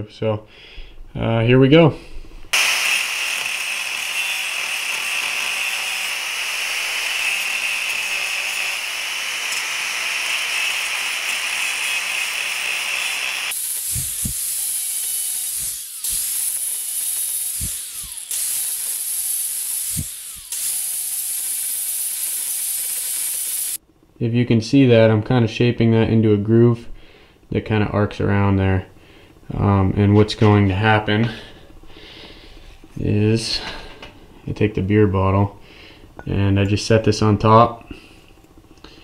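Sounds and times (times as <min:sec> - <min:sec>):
angle grinder cutting steel: 0:02.5 - 0:23.8.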